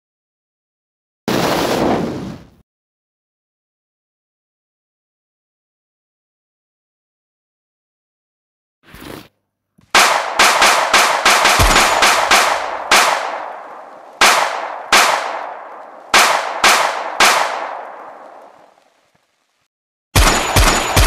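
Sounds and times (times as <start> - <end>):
gunshots with echoing tail: 10.0 - 18.8, 20.2 - 21.0.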